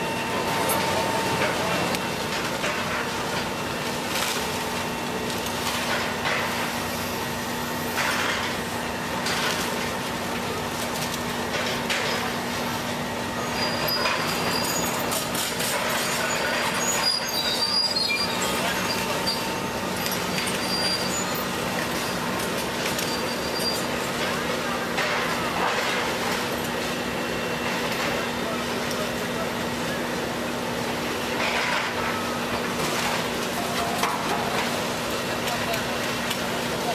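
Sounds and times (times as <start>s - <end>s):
excavator engine hum: 0.0s - 36.9s
high metallic squeals: 13.3s - 15.2s, 16.0s - 22.3s, 22.9s - 24.0s.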